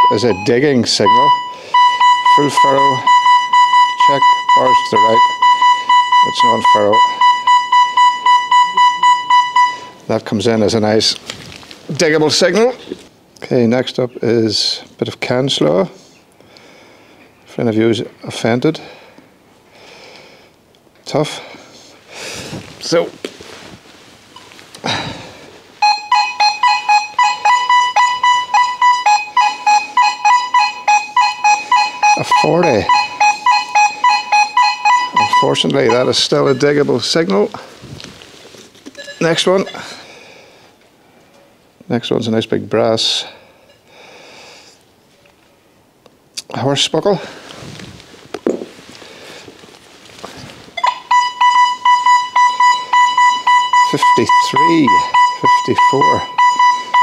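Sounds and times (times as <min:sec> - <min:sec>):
metal detector beeping: 0:00.0 - 0:10.0, 0:25.8 - 0:37.1, 0:38.9 - 0:40.0, 0:50.8 - 0:57.0.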